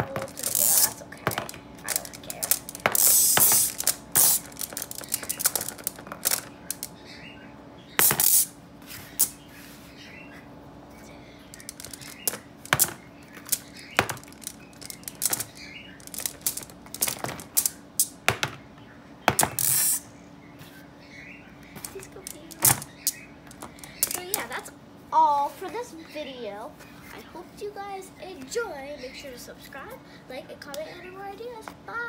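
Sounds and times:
magnetic balls clicking together: 0:00.0 - 0:07.0, 0:11.5 - 0:18.2, 0:21.8 - 0:24.6
magnetic balls rattling: 0:00.0 - 0:07.0, 0:08.0 - 0:08.6, 0:11.5 - 0:18.6, 0:19.3 - 0:20.0, 0:21.8 - 0:24.6.

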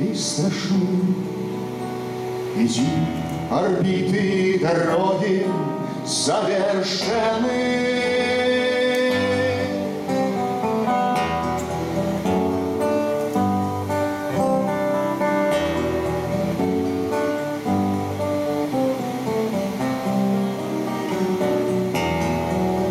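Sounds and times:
acoustic guitar playing: 0:00.0 - 0:22.9.

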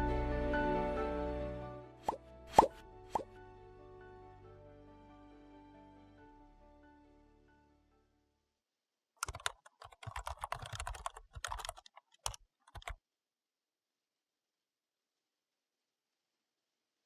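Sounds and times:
background music: 0:00.0 - 0:08.2
computer keyboard typing: 0:09.2 - 0:13.0.

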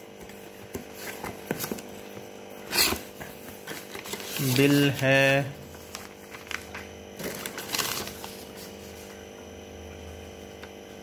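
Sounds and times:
steady low hum: 0:00.0 - 0:11.0
paper and cardboard rustling: 0:00.2 - 0:09.2.

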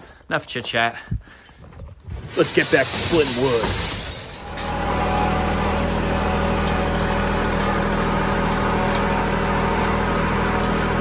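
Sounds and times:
tractor diesel engine running: 0:04.4 - 0:11.0.

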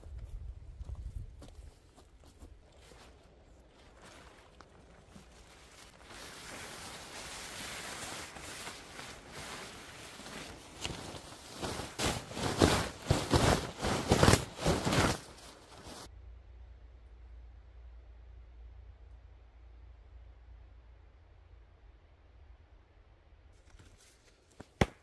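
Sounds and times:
tarp rustling: 0:02.6 - 0:16.1
tarp crinkling: 0:02.7 - 0:16.1.

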